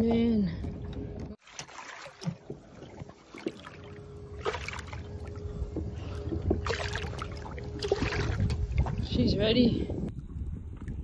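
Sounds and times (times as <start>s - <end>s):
water lapping against boat: 0.0s - 10.1s
light splashes: 1.4s - 9.3s
faint steady hum: 2.4s - 10.1s.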